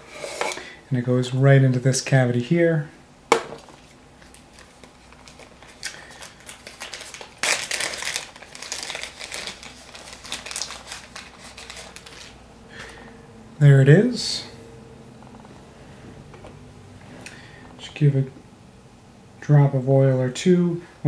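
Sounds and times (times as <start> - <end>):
hands rummaging small items: 3.6 - 12.9.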